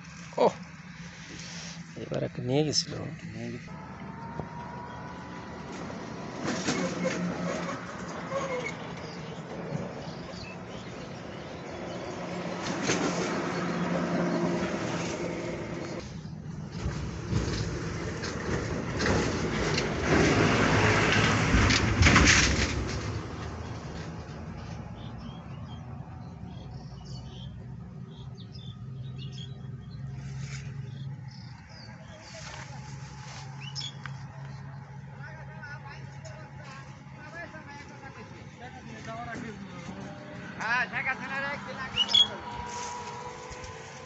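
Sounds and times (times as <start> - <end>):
motor engine humming: 0.0 - 22.1, 22.8 - 44.0
outdoor background noise: 0.0 - 44.0
small birds chirping: 8.6 - 14.5, 23.6 - 35.9, 41.7 - 42.5.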